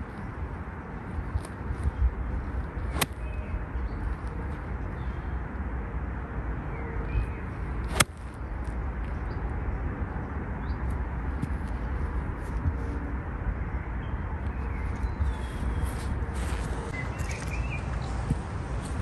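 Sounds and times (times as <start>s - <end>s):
wind on microphone: 0.0s - 5.4s
club clipping grass: 2.7s - 3.4s, 7.8s - 8.8s
bird chirps: 16.7s - 18.2s.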